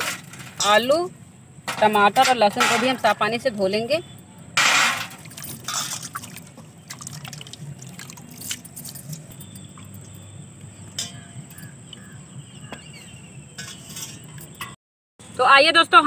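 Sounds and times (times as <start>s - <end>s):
water sloshing and splashing in bowl: 5.0s - 10.3s
water dripping: 5.1s - 12.1s.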